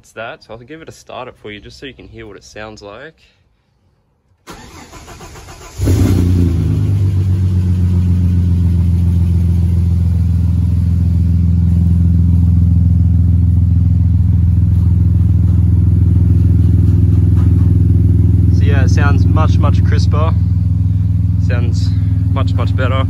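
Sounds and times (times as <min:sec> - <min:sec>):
starter motor cranking: 0:04.5 - 0:06.1
car engine idling: 0:04.5 - 0:23.0.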